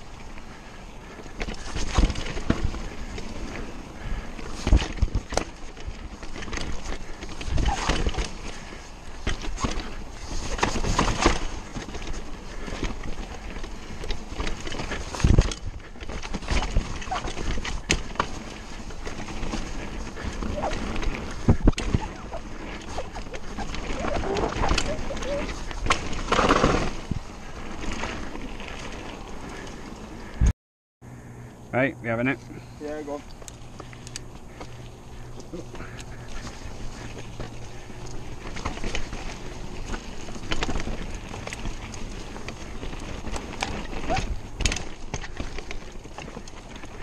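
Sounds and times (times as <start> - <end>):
bike rattling over bumps: 0.0 - 30.5, 32.5 - 47.0
bike tyres rolling on dirt: 0.0 - 30.5, 31.1 - 47.0.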